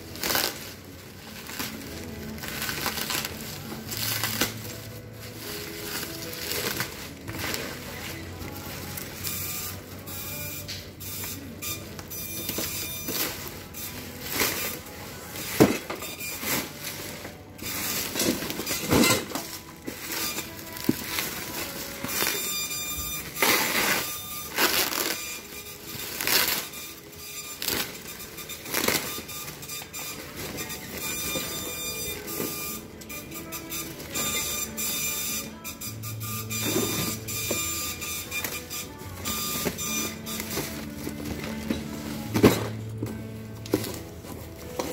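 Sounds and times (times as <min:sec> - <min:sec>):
plastic packaging crinkling: 0:00.0 - 0:09.2.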